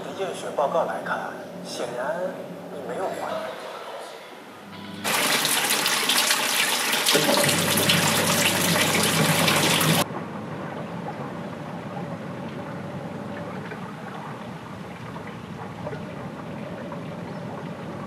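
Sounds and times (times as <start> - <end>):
low hum: 3.5 - 5.3
water running from a tap: 5.0 - 10.0.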